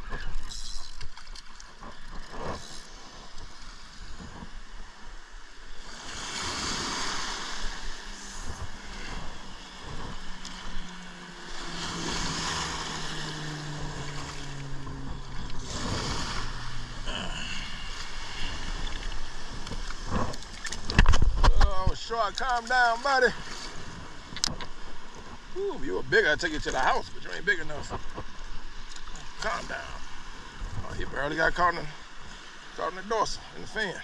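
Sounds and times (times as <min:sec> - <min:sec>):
small waves breaking: 0:00.0 - 0:34.0
wind on microphone: 0:05.9 - 0:22.0, 0:30.5 - 0:31.3.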